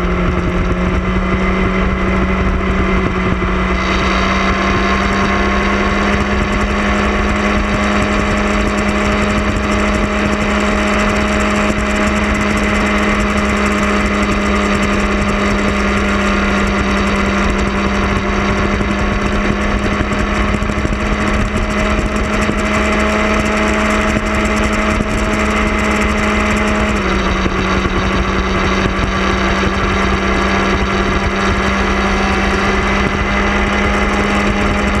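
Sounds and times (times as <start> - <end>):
motorcycle engine running: 0.0 - 35.0
wind and road noise: 0.0 - 35.0.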